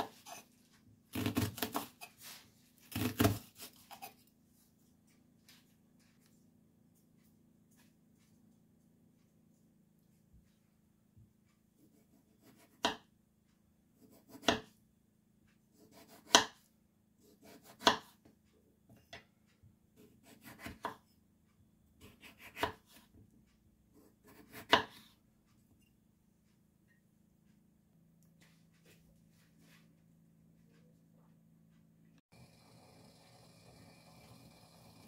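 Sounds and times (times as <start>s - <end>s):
knife slicing through potato: 0.0s - 0.5s, 1.1s - 4.3s, 11.8s - 13.1s, 14.0s - 14.8s, 15.7s - 16.6s, 17.2s - 18.2s, 20.0s - 21.1s, 22.0s - 23.2s, 23.9s - 25.2s.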